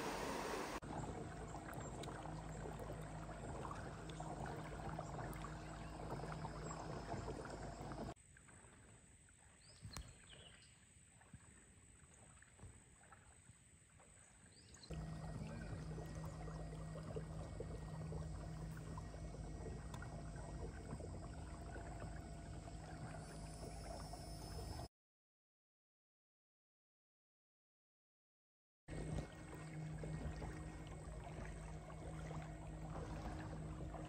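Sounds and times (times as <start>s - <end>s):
steady hiss: 0.0s - 0.8s
low hum: 0.0s - 8.2s, 14.9s - 24.9s, 28.9s - 34.0s.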